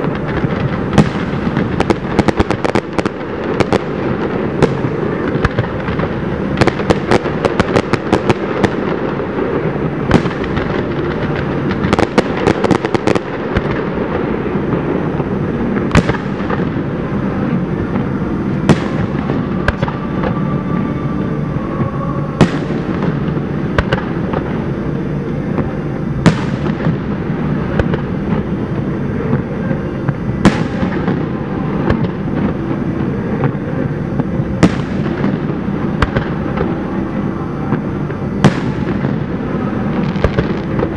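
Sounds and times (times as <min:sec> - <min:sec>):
firework booms echoing: 0:00.0 - 0:17.0, 0:17.9 - 0:20.4, 0:21.8 - 0:24.7, 0:25.5 - 0:28.6, 0:33.4 - 0:36.8, 0:37.7 - 0:40.9
firework shells crackling: 0:00.0 - 0:17.0
background rumble: 0:00.0 - 0:40.9.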